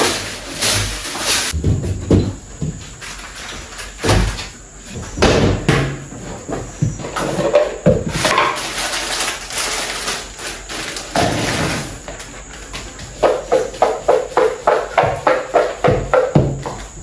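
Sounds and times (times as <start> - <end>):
packets and containers clattering: 0.0 - 2.3, 7.1 - 12.2.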